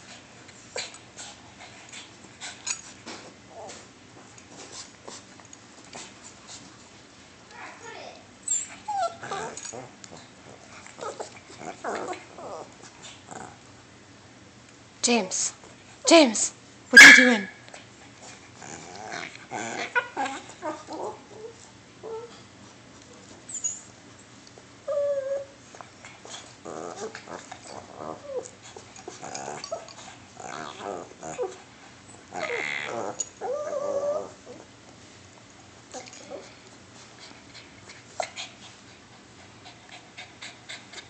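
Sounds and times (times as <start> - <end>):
small dogs play-growling: 0.0 - 6.6, 8.5 - 13.8, 17.7 - 22.6, 24.5 - 34.8, 35.9 - 41.0.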